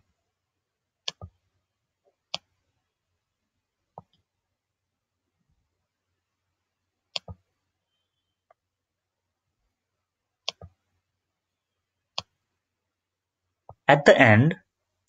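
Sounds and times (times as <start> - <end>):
computer mouse clicking: 1.0 - 1.4, 7.1 - 7.4, 10.4 - 10.8.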